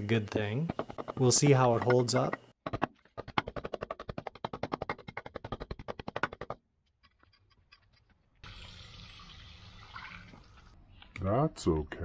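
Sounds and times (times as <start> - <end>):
hand tamper tapping asphalt: 0.7 - 6.6.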